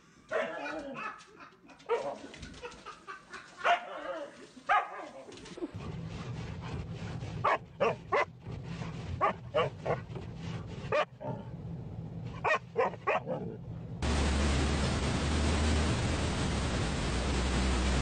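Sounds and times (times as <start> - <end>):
dog barking: 0.3 - 2.2, 3.6 - 5.2, 7.4 - 8.3, 9.2 - 10.0, 12.4 - 13.5
steady low hum: 13.5 - 18.0
steady hiss: 14.0 - 18.0.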